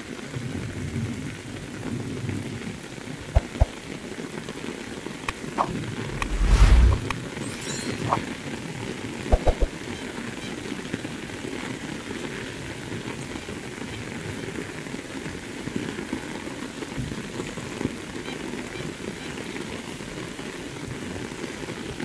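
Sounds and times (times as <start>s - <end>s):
heavy rain on road: 0.0s - 3.2s, 10.8s - 22.0s.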